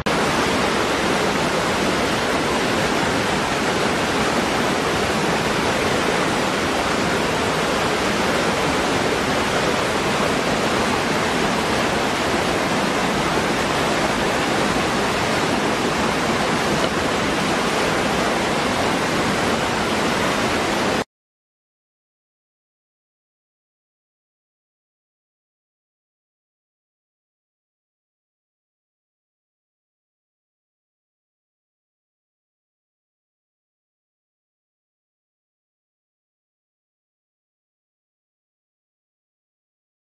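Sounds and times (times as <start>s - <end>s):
waterfall rushing: 0.1s - 21.1s.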